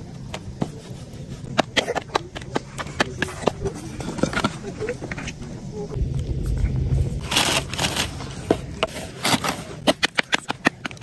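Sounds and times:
wind rumble on microphone: 5.7s - 8.9s.

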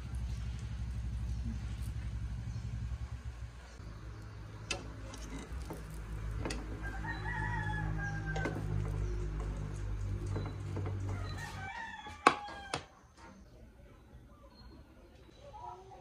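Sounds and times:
steady low hum: 0.0s - 11.4s
rooster crowing: 6.6s - 9.1s, 10.9s - 13.0s.

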